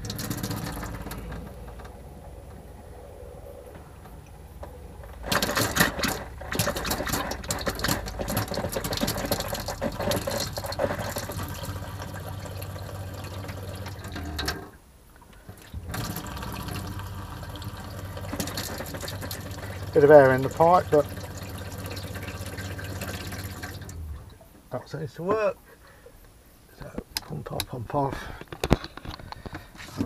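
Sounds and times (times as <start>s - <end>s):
tap water splashing into sink: 0.0s - 1.4s, 5.3s - 14.6s, 15.6s - 24.0s
water pump humming: 0.0s - 24.8s.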